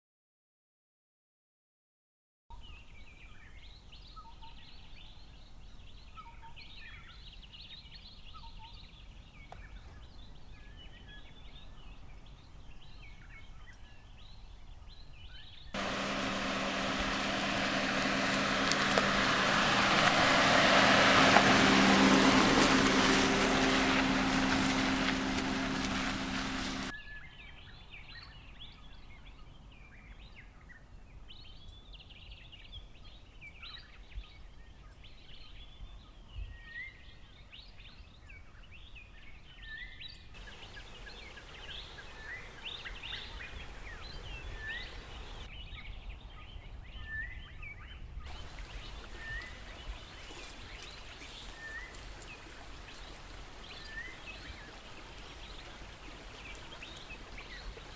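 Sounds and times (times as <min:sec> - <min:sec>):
car driving on dirt track: 0:15.8 - 0:26.9, 0:40.4 - 0:45.5, 0:48.3 - 0:57.9
birds chirping and calling: 0:40.4 - 0:45.5.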